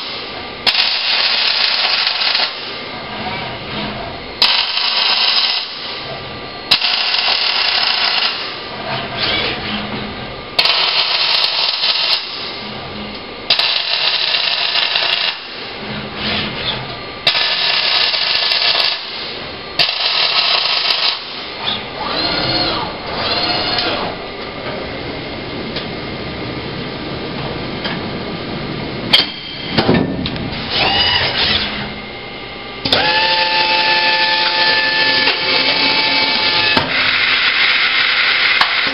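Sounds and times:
arc welding crackling hiss: 0.0 - 2.8, 6.7 - 8.6, 13.5 - 15.6, 17.3 - 19.2, 19.8 - 21.4
steady machine whine: 0.0 - 38.9
servo motors whining: 21.6 - 24.2, 30.7 - 32.0, 32.8 - 38.9.

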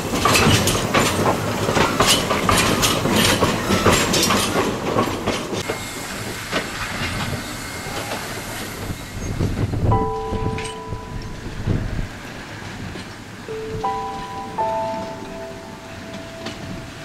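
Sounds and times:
train wheels clacking over rail joints: 0.0 - 9.8.

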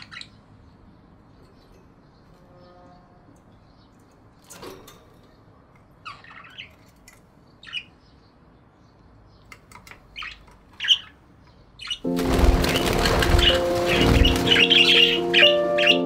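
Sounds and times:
budgerigars chirping and squawking: 0.0 - 0.6, 6.0 - 8.5, 9.8 - 16.0.

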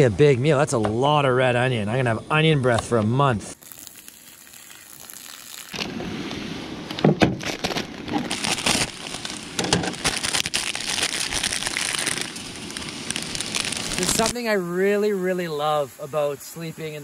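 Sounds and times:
meat sizzling in a frying pan: 3.6 - 5.8
plastic packet crinkling: 3.6 - 5.9, 7.4 - 14.4.

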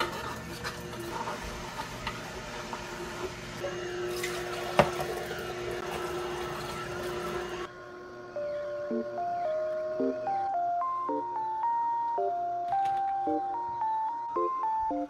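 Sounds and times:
juicer running: 0.0 - 11.4.

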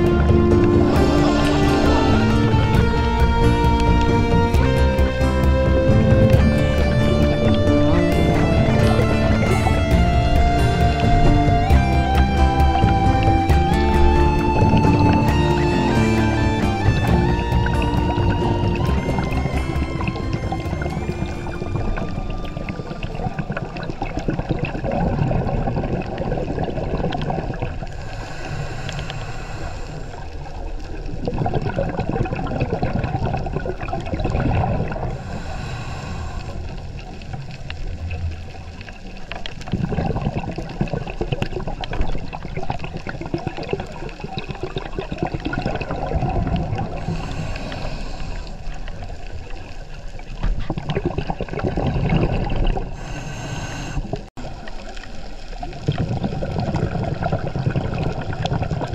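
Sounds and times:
steady low rumble: 0.0 - 24.5
underwater bubbles gurgling: 0.0 - 58.9.

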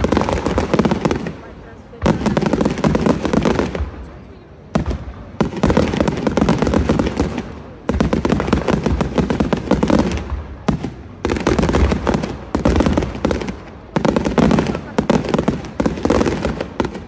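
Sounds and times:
fireworks bursting and crackling: 0.0 - 17.0.

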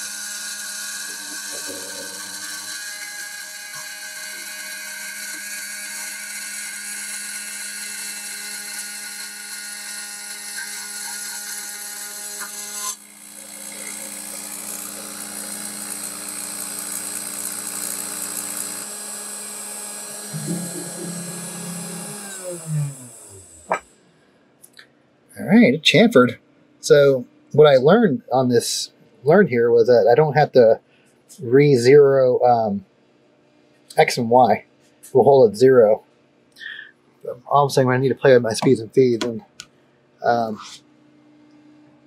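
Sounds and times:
cnc router spindle whine: 0.0 - 23.9.

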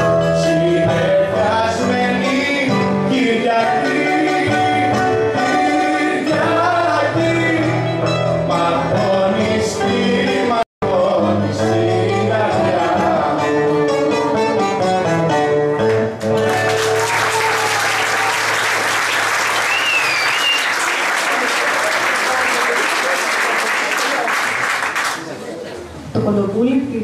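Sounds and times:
acoustic guitar: 0.0 - 17.7
people singing: 0.4 - 14.6
audience applause: 16.2 - 25.4.

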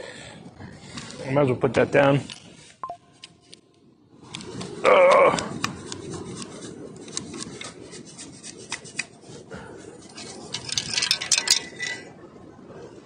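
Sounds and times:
bright rattle: 10.1 - 12.1.

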